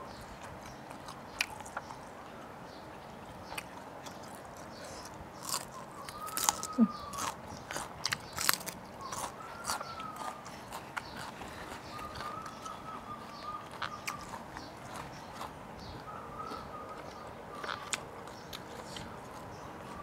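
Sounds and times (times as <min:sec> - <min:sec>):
soft chewing clicks: 0:00.1 - 0:20.0
crunching raw bean: 0:03.5 - 0:20.0.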